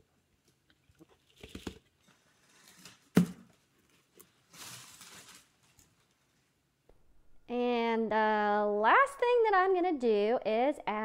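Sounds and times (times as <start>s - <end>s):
plastic bowl rustling: 0.8s - 6.2s.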